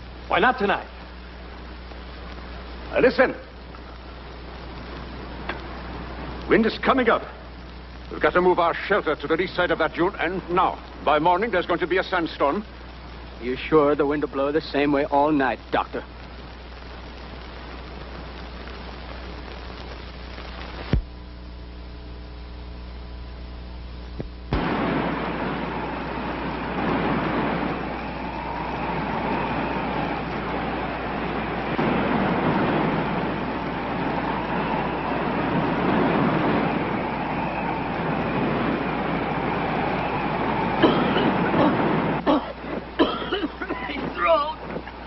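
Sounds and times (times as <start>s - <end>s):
film soundtrack hiss: 0.0s - 45.0s
mains hum: 0.0s - 45.0s
loud rushing noise: 24.6s - 45.0s.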